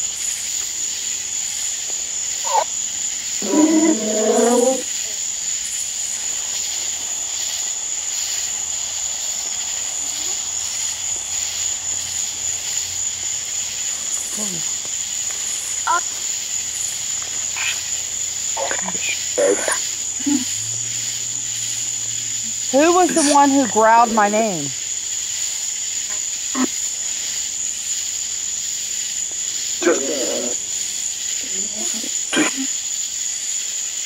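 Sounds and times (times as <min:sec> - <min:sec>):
night insects chorus: 0:00.0 - 0:34.0
faint voice-like sounds: 0:14.3 - 0:14.8, 0:18.6 - 0:20.5.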